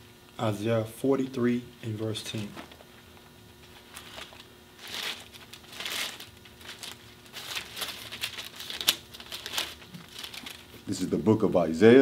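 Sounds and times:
pages rustling: 2.3 - 10.8.

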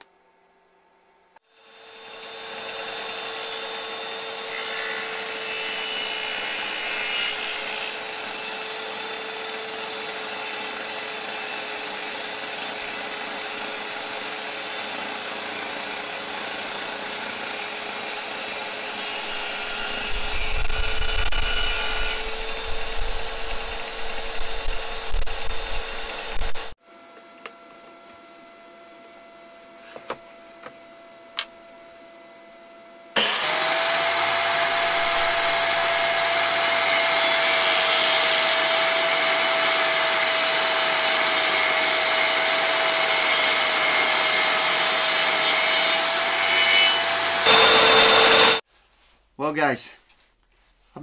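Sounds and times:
saw cutting through wood: 1.4 - 26.8, 33.2 - 48.6
table saw motor humming: 1.6 - 26.8, 33.2 - 48.6.

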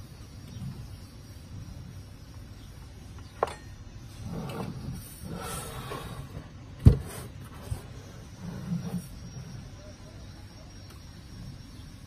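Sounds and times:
rubbing and sliding on table: 4.1 - 9.8.

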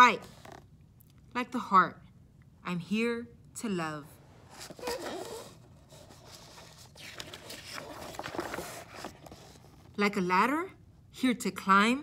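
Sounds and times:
book page turning: 4.4 - 10.0.

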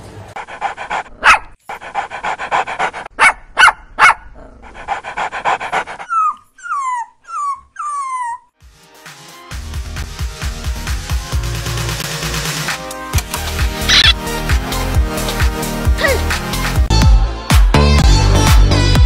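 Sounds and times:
rapid huffing: 0.4 - 3.1, 4.6 - 6.1
cat meowing: 13.9 - 14.1
sharp short cries: 13.9 - 14.2.

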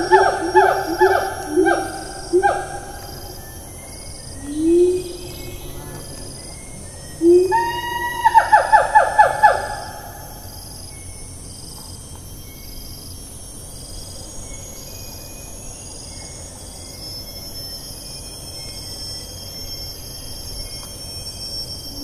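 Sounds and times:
faint bird notes: 0.0 - 10.0
insects droning: 0.0 - 22.0
gibbon call falling notes: 4.4 - 10.0.

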